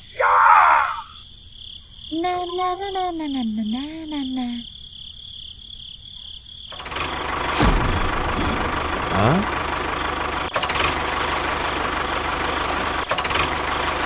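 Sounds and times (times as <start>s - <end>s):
wavering voice-like call: 0.0s - 1.2s.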